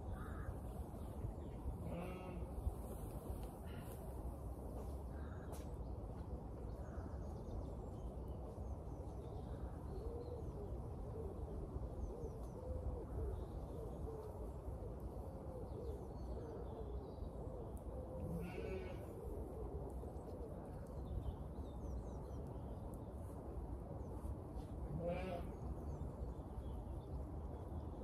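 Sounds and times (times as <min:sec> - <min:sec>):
bird cooing: 0:10.0 - 0:20.6.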